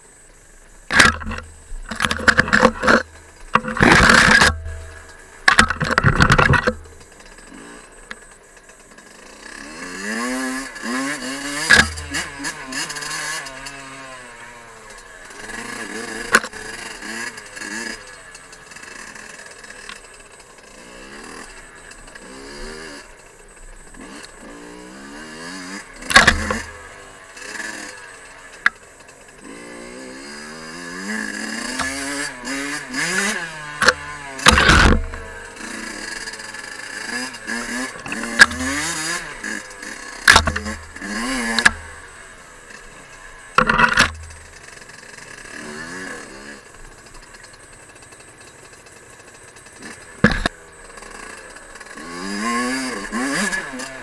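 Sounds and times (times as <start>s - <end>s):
two-stroke engine revving: 0.8s - 54.0s
sharp knocks: 11.7s - 12.3s, 26.1s - 26.7s, 33.8s - 35.3s, 40.3s - 40.8s, 50.2s - 50.5s.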